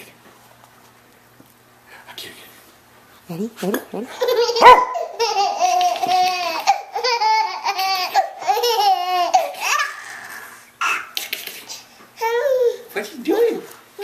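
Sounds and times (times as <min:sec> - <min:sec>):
baby giggling: 0:04.1 - 0:12.8.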